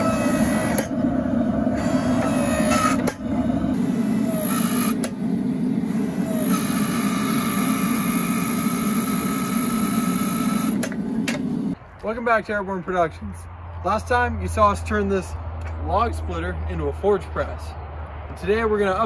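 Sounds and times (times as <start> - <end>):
motor and hydraulic pump running: 0.0 - 11.8
high steady whine: 0.0 - 12.2.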